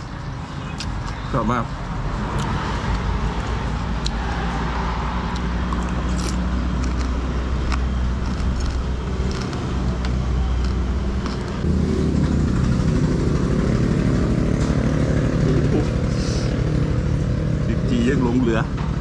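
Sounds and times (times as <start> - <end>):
vehicle engine running: 5.2 - 19.0.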